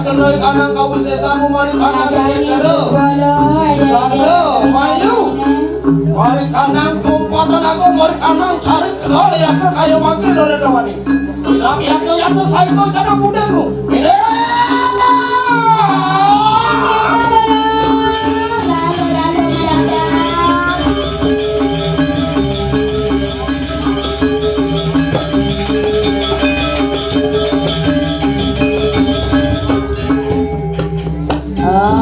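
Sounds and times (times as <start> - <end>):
gamelan playing: 0.0 - 32.0
person singing: 13.9 - 21.7, 29.6 - 32.0.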